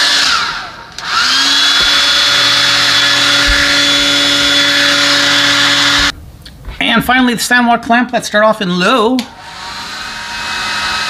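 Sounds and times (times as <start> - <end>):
blow dryer running: 0.0 - 6.2, 9.2 - 11.0.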